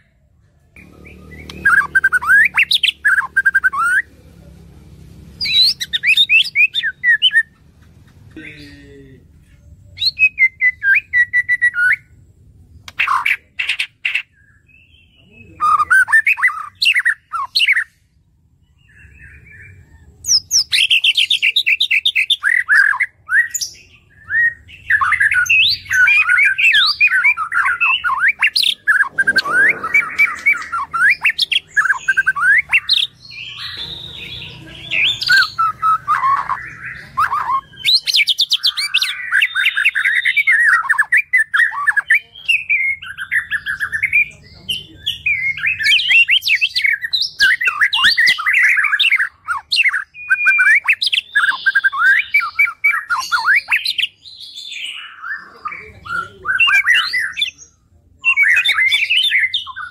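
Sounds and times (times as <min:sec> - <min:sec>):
bird singing whistled phrases: 0:10.0 - 0:12.0, 0:18.9 - 0:44.3, 0:45.1 - 0:57.6.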